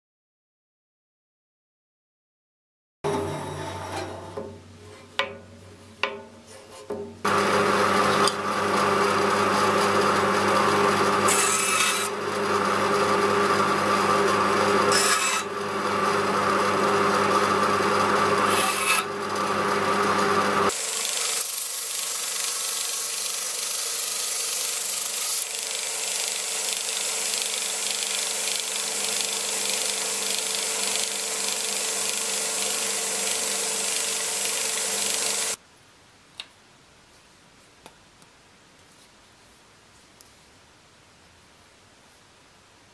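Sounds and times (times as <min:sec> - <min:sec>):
bandsaw cutting wood: 0:07.3 - 0:35.6
disc sander grinding wood: 0:07.3 - 0:35.6.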